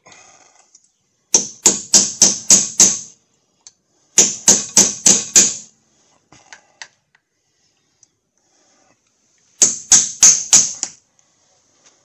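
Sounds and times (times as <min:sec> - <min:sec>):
hammer striking steel: 0:04.2 - 0:05.7.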